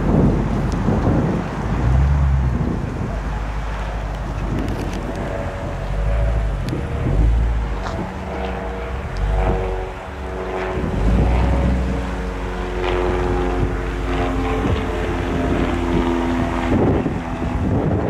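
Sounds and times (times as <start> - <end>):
car engine running at low revs: 0.0 - 18.0
wind noise on microphone: 0.0 - 18.0.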